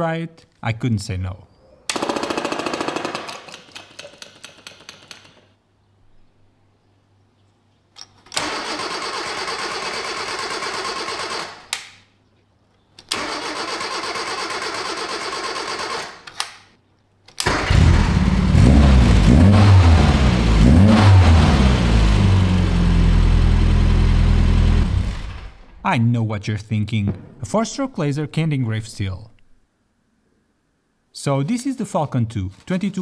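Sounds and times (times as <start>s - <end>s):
starter motor cranking: 8.3s - 11.7s, 13.1s - 16.2s, 17.4s - 18.6s
engine revving and idling: 17.5s - 25.6s.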